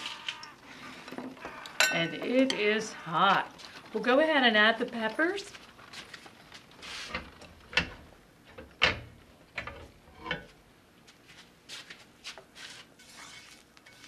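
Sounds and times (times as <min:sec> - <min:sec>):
skillet knocking and clattering: 0:07.2 - 0:10.6
soft rustles: 0:11.1 - 0:14.0.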